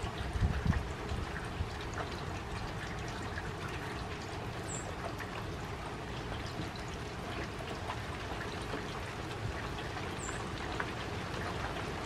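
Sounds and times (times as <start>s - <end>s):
rain falling on puddle and leaves: 0.0s - 12.0s.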